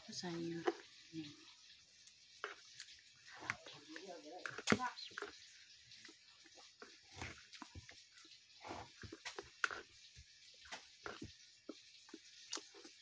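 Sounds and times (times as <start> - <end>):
chewing: 0.2 - 13.0
spoon scraping against bowl: 8.6 - 10.0.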